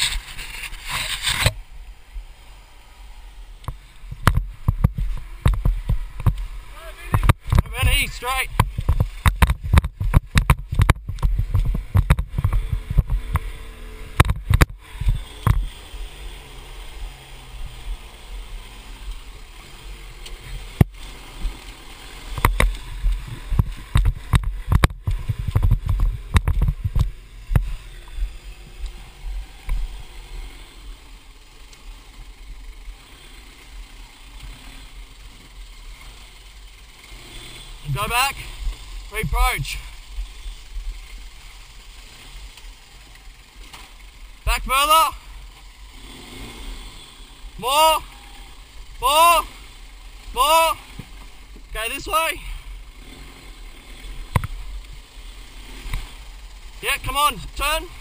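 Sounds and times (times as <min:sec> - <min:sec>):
engine and drivetrain rumble: 0:00.0 - 0:58.0
knocks and thumps over rocks: 0:04.2 - 0:06.4, 0:07.1 - 0:13.5, 0:23.5 - 0:27.7.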